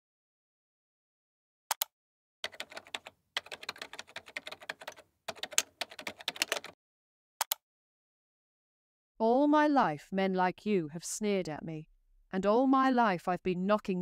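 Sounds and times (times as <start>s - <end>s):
typing on a computer keyboard: 1.7s - 6.8s.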